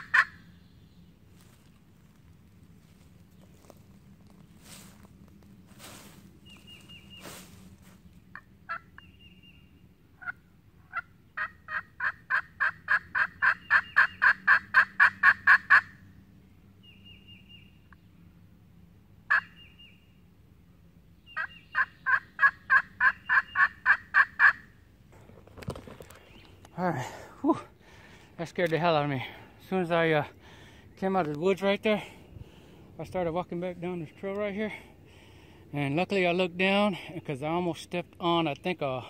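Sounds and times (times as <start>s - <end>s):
turkey call yelping: 0.0s - 0.4s, 8.3s - 9.1s, 10.2s - 16.0s, 19.3s - 19.8s, 21.3s - 24.7s.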